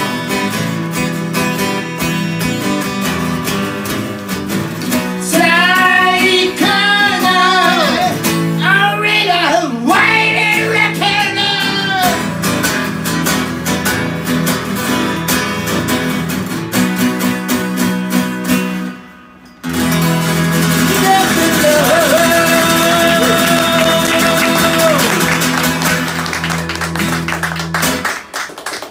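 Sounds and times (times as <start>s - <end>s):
acoustic guitars strummed: 0.0s - 28.3s
person singing: 5.2s - 12.2s, 20.8s - 25.5s.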